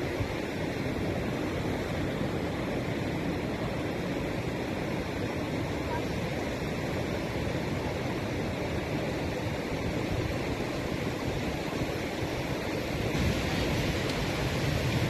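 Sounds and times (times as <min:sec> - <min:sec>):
sea surf breaking: 0:11.2 - 0:15.0.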